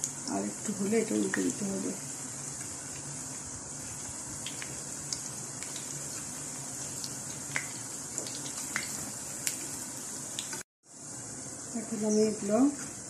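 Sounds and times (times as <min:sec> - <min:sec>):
food deep-frying in oil: 0:00.0 - 0:13.0.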